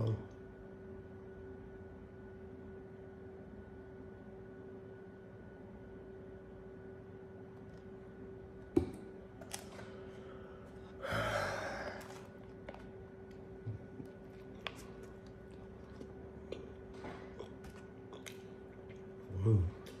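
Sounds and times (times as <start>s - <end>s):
faint steady hum: 0.0s - 20.0s
person gasping: 10.2s - 12.3s.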